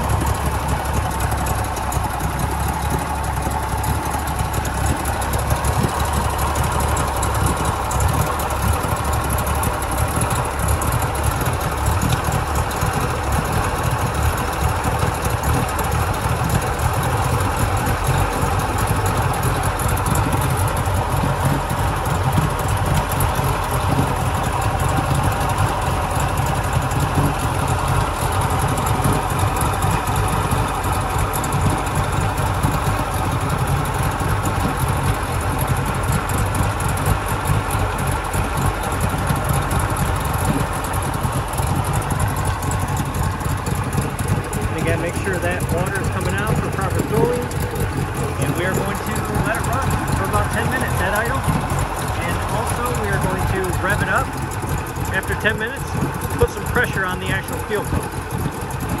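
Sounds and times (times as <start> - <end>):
outboard engine idling: 0.0 - 59.0.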